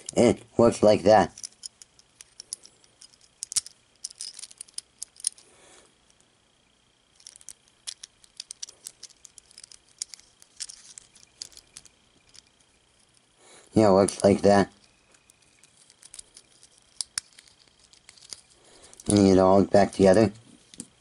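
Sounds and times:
plastic puzzle pieces clicking: 0:01.3 - 0:05.5, 0:07.2 - 0:13.2, 0:15.1 - 0:20.1.

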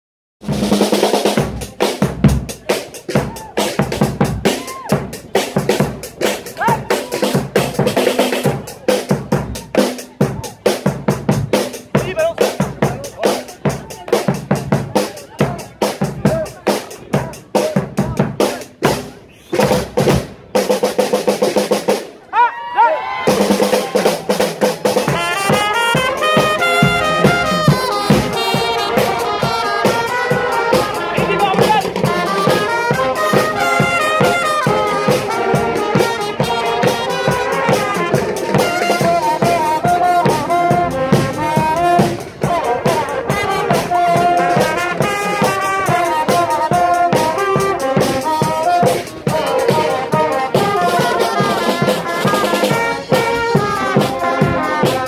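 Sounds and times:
bass drum and snare: 0:00.4 - 0:22.2, 0:23.3 - 0:55.0
marching brass band: 0:00.4 - 0:22.2, 0:23.2 - 0:55.0.

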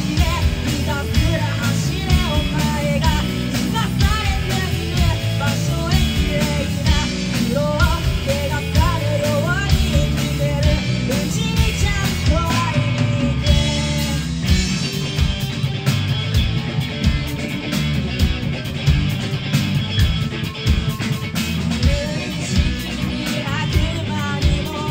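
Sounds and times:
person singing lead vocal: 0:00.0 - 0:14.6, 0:21.7 - 0:24.9
bass guitar: 0:00.0 - 0:24.9
drum kit: 0:00.0 - 0:24.9
electric guitar: 0:00.0 - 0:24.9.

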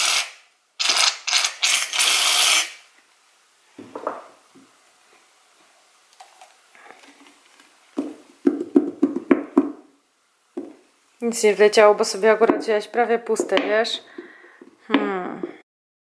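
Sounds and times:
person speaking: 0:11.2 - 0:15.6.

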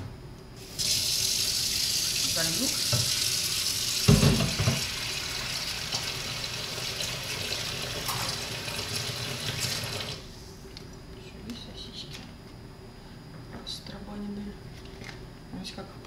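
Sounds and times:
tap water running into sink: 0:00.8 - 0:10.2.

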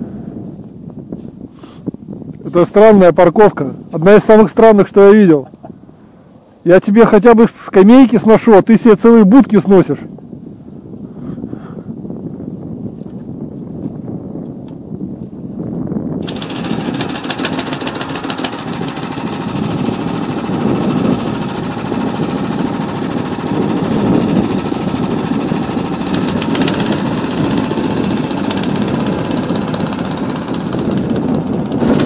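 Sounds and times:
engine revving under load: 0:16.2 - 0:32.0
rattling: 0:16.2 - 0:32.0.

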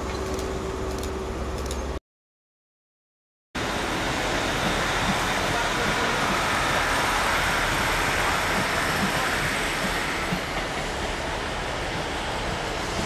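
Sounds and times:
train running over tracks: 0:03.6 - 0:13.0.

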